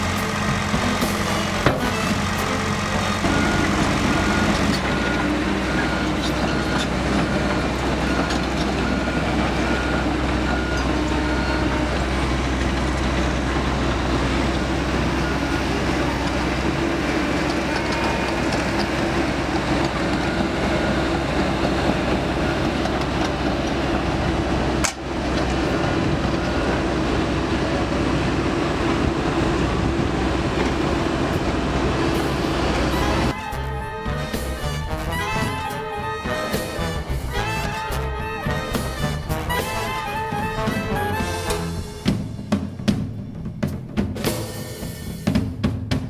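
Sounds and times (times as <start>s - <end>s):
heavy machinery diesel engines: 0.0s - 45.5s
reversing alarm beeping: 0.9s - 23.2s, 32.3s - 42.1s.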